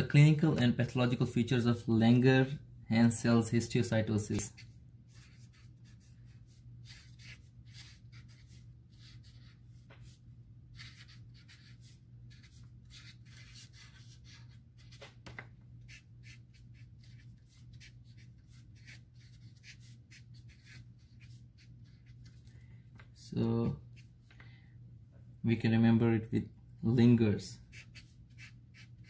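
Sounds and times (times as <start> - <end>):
marker squeaking on whiteboard: 10.8 - 15.2, 15.8 - 22.4, 27.7 - 29.0.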